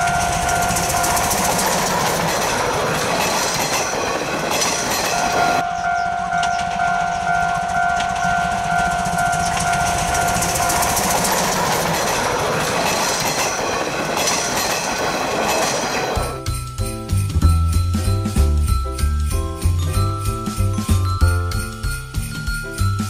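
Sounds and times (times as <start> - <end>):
train wheels clicking over rail joints: 0.0 - 16.4
locomotive exhaust beating: 0.0 - 23.0
steam locomotive whistle: 5.1 - 11.1.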